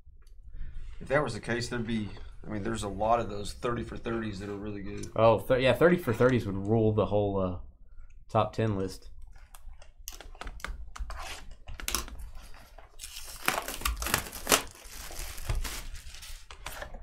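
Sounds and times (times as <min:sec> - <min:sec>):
card pack wrapper tearing: 0:11.4 - 0:17.0.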